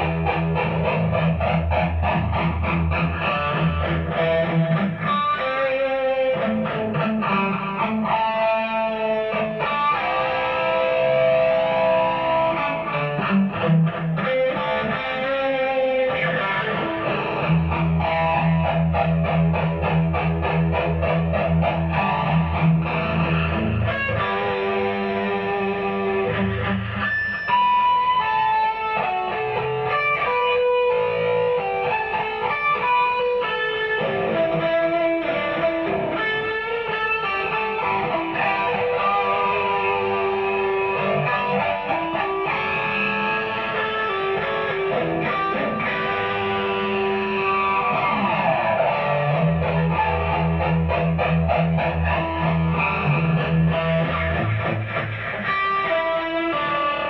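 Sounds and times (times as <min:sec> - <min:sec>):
deeper low guitar part: 0:00.0 - 0:57.0
electric guitar melodic lines: 0:00.0 - 0:57.0.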